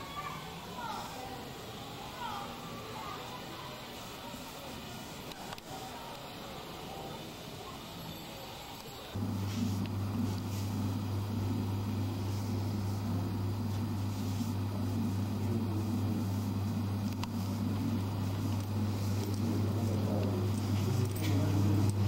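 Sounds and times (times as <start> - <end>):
low electrical hum: 8.7 - 22.0.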